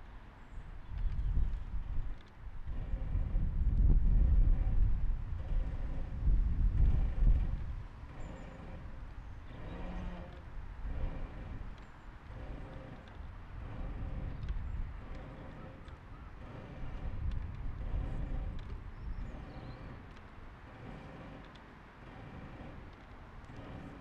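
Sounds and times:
wind on microphone: 0.0 - 24.0
hand winch clicks and creaks: 6.8 - 24.0.

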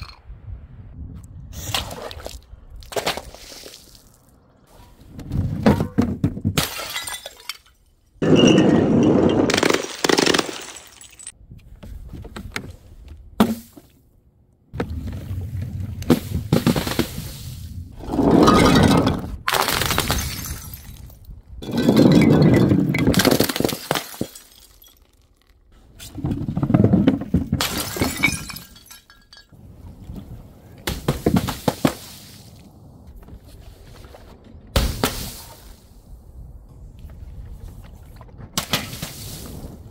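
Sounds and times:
glass bottles shattering: 6.6 - 11.3, 18.4 - 25.5, 27.5 - 29.6.

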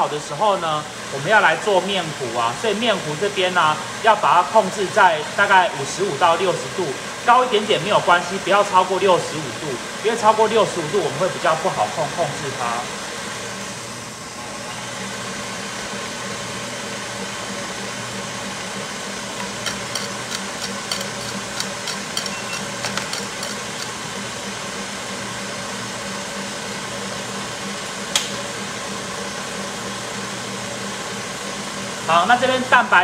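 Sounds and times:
stand mixer motor whirring: 0.3 - 33.0
whisk whipping egg whites: 18.8 - 24.2.

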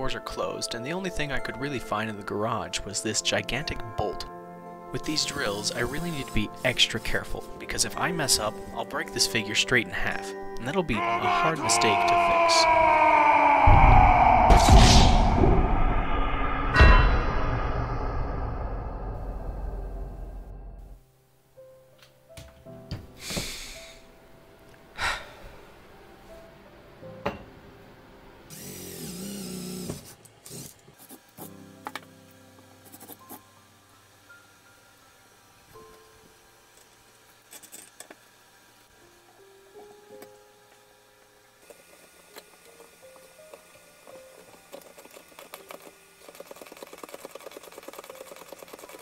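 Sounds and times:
faint soft music: 0.0 - 12.4, 21.0 - 28.9, 31.0 - 46.3.

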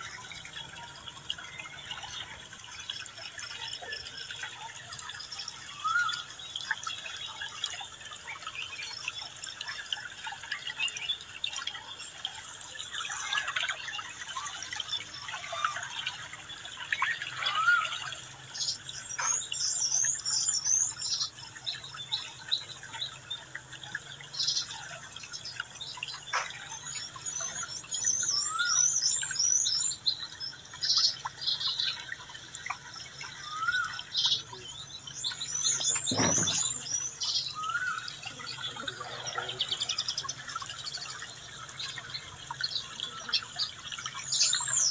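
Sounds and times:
birds chirping: 24.3 - 44.9
high bird twittering: 35.2 - 39.6.

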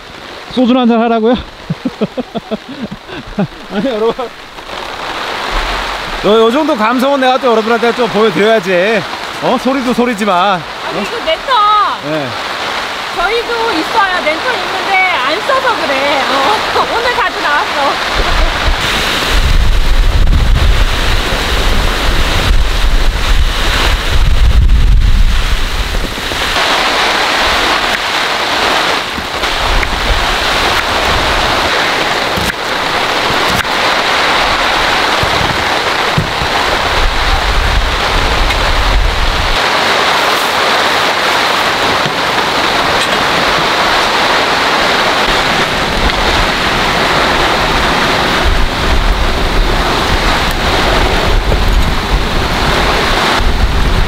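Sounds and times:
heavy rain pouring: 0.0 - 54.0
wind buffeting microphone: 12.8 - 54.0.

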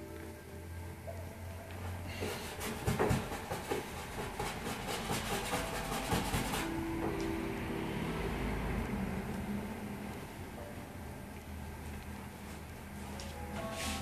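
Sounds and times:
paintbrush scrubbing canvas: 2.3 - 6.8.

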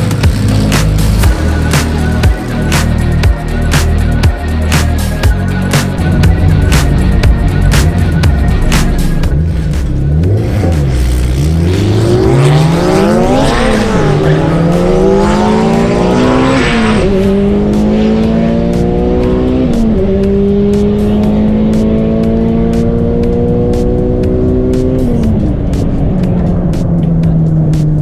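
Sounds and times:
car engine at full throttle: 0.0 - 28.0.

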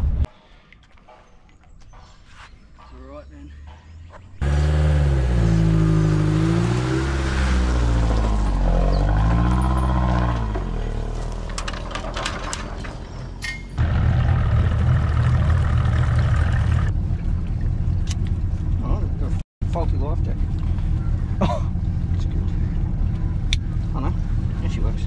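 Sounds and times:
vehicle engine revving: 4.4 - 11.6, 13.8 - 17.0
boat engine low rumble: 13.8 - 25.0
wind and water noise: 14.2 - 19.4.

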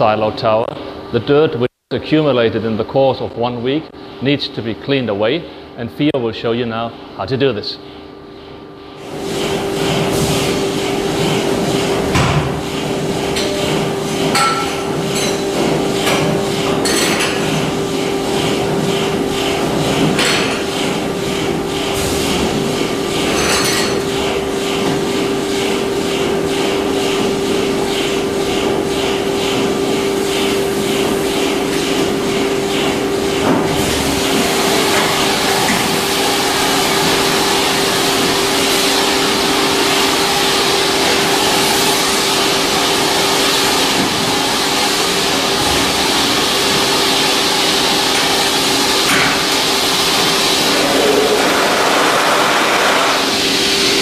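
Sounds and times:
vacuum machine hum: 8.8 - 54.0
rushing air hiss: 49.4 - 54.0.

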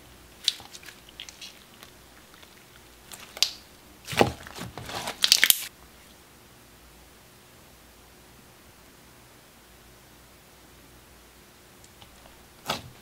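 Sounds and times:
slime squelching: 0.0 - 5.7, 11.9 - 13.0.

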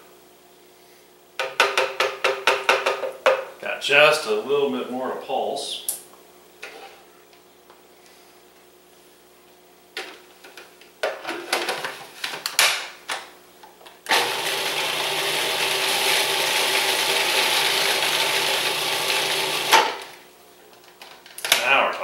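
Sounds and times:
food processor chopping: 14.1 - 20.1.

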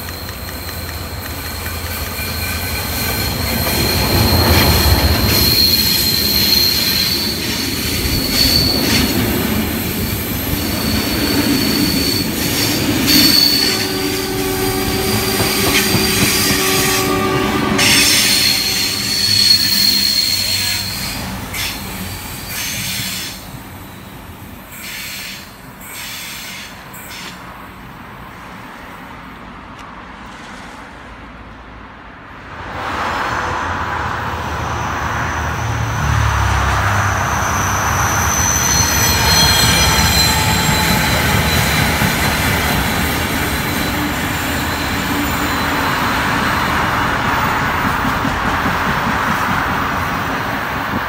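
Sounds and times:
train wheel clicks: 0.0 - 6.0, 15.3 - 16.8
wheels rolling and squealing: 0.0 - 24.1, 34.6 - 47.8.

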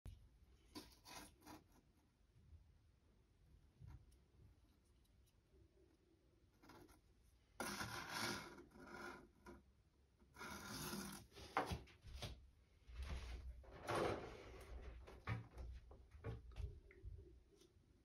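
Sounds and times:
rubbing and scraping handling noise: 0.6 - 2.2.

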